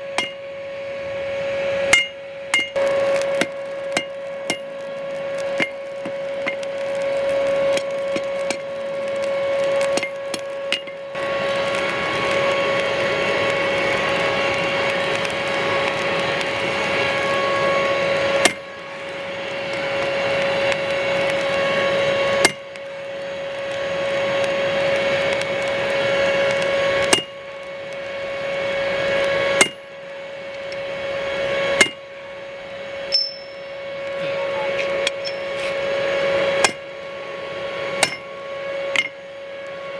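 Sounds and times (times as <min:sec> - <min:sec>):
steady machine hum: 0:00.0 - 0:39.9
metallic clinks on anvil: 0:33.1 - 0:33.6.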